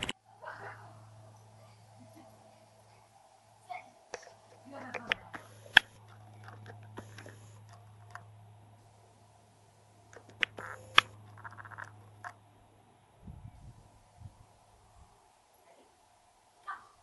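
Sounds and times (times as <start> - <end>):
low hum: 0.0 - 17.0
lens zoom whirring: 4.2 - 8.3, 10.1 - 12.4.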